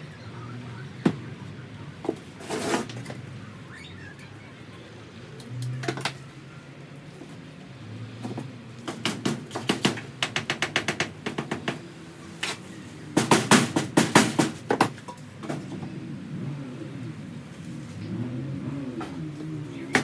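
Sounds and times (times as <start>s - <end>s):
sharp knocks on timber wall: 13.2s - 15.0s.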